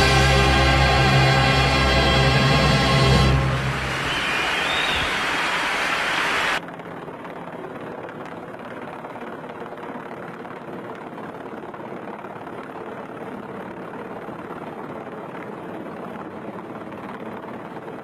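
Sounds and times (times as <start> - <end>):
loud music: 0.0 - 6.0
helicopter hovering: 0.0 - 18.0.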